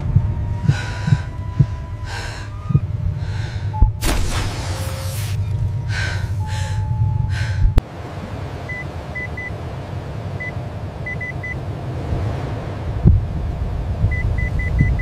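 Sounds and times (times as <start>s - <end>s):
low rumble: 0.0s - 15.0s
air hissing through needle: 4.0s - 6.8s.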